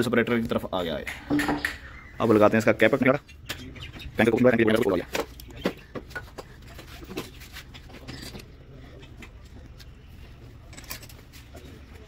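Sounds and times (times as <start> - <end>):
metallic clicks and scrapes: 6.6 - 10.0, 10.6 - 11.6.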